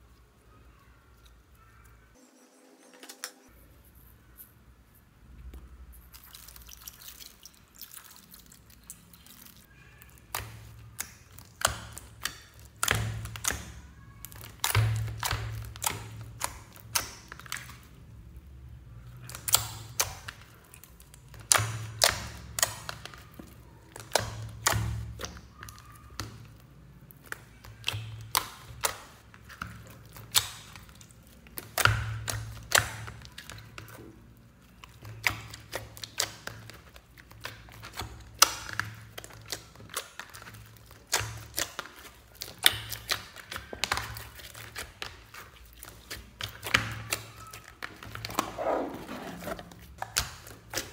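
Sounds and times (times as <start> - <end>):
slime squishing with sticky clicks: 5.4 - 50.9.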